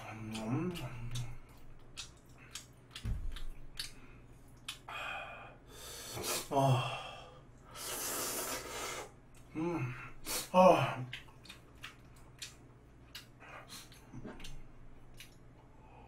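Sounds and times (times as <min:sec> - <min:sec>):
man slurping noodles: 0:07.8 - 0:09.1.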